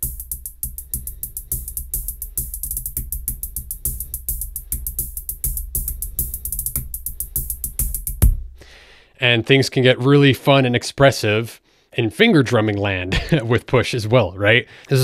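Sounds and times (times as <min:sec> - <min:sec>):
finger-drummed hi-hat ticks: 0:00.0 - 0:08.7
steady low bass: 0:00.0 - 0:08.8.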